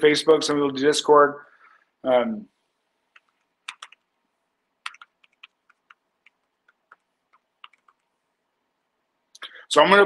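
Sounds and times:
keyboard keys typing: 3.1 - 4.1, 4.8 - 8.2.

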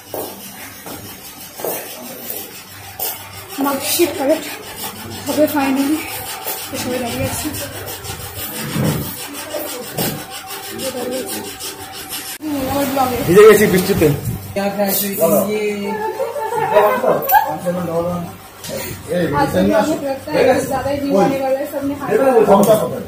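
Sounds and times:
indistinct crowd voices: 0.0 - 14.6
phone microphone rubbing: 2.9 - 12.4.

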